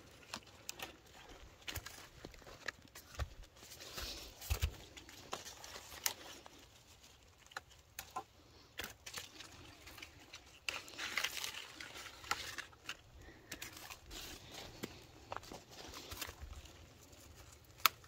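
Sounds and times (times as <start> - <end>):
plant leaves rustling: 0.0 - 18.0.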